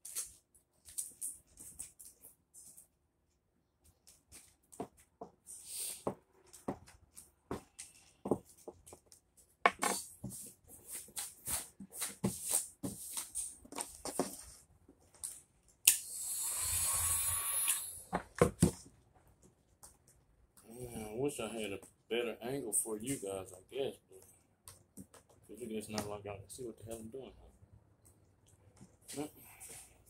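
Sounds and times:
heat gun blowing: 15.9s - 18.1s.

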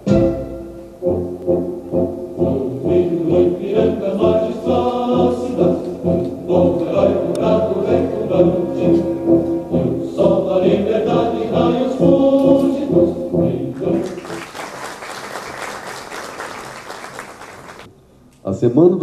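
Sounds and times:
audience singing in unison: 1.9s - 14.7s
applause: 14.0s - 17.9s.

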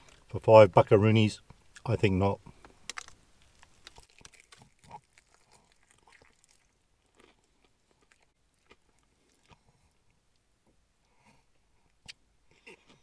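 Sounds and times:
person chewing: 2.5s - 10.4s, 11.3s - 13.0s.

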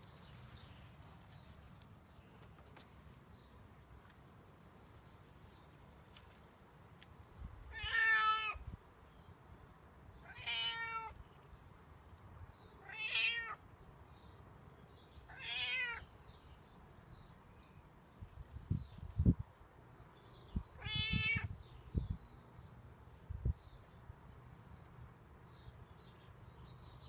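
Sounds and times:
cat meowing: 7.7s - 8.6s, 10.2s - 11.2s, 12.8s - 13.6s, 15.3s - 16.1s, 20.8s - 21.5s.

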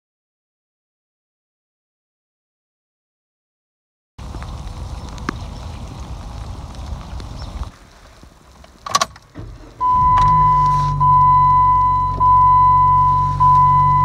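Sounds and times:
car engine starting and idling: 8.5s - 14.0s
car door shutting: 8.8s - 14.0s
dashboard warning chime: 9.8s - 14.0s.

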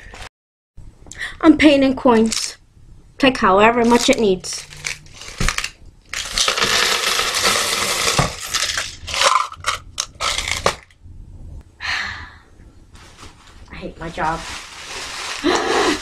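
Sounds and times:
coins rattling in metal can: 3.9s - 10.8s
coins clattering: 4.7s - 10.8s.

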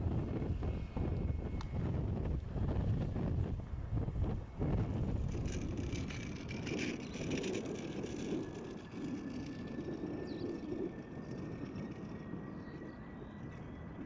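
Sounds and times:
distant jet engines rumbling: 0.0s - 14.0s
faint high jet whine: 0.0s - 14.0s.

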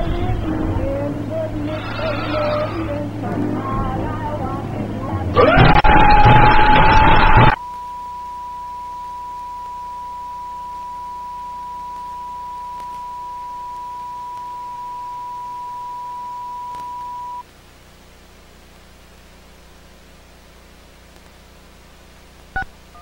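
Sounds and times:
steady test tone: 0.0s - 17.4s
faint tape hiss: 0.0s - 23.0s.

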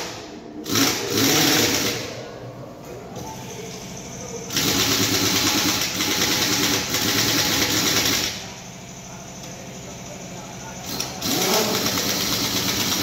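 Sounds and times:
pneumatic impact wrench: 0.0s - 2.2s, 4.5s - 8.6s, 10.8s - 13.0s
steady mechanical hum: 0.0s - 13.0s.

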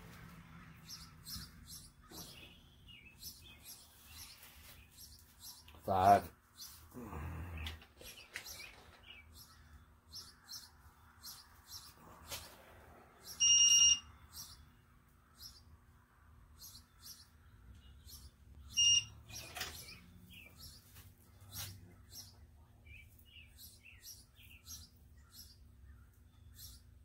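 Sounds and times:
torque wrench beeps: 13.4s - 14.0s, 18.8s - 19.2s.

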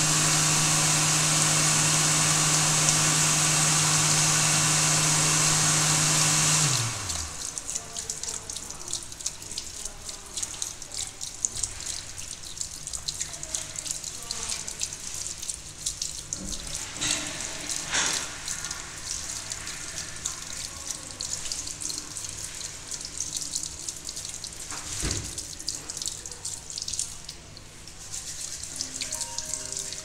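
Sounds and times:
tap water splashing into washbasin: 6.2s - 30.0s.

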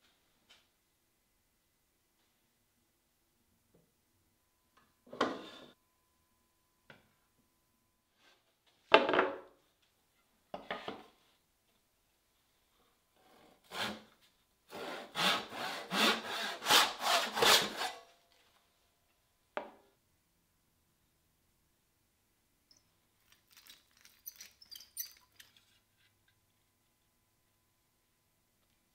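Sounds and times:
hand saw cutting wood: 13.2s - 14.1s, 14.7s - 18.1s.

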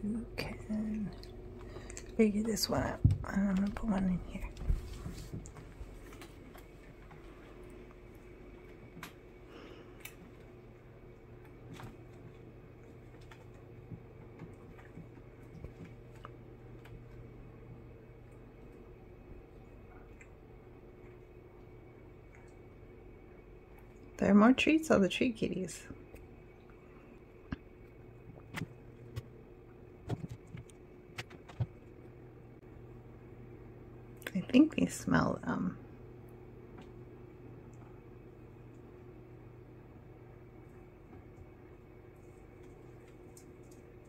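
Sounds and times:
steady low hum: 0.0s - 44.0s.

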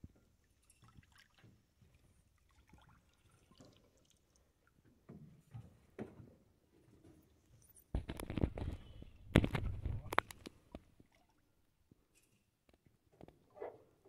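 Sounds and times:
water splashes: 0.6s - 4.5s.

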